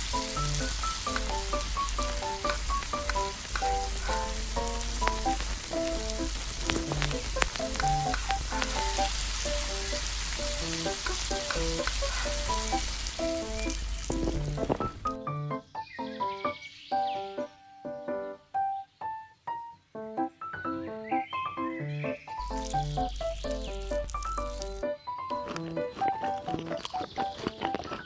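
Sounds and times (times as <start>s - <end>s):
food sizzling in pan: 0.0s - 14.9s, 22.4s - 24.8s
light background music: 0.0s - 28.0s.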